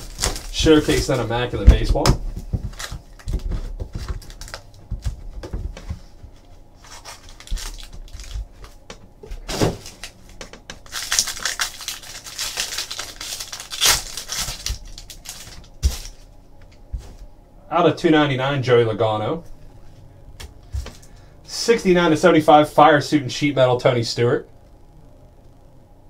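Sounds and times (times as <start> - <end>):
plastic wrapper crinkling: 0.0 - 5.2, 6.8 - 8.8, 9.4 - 16.3.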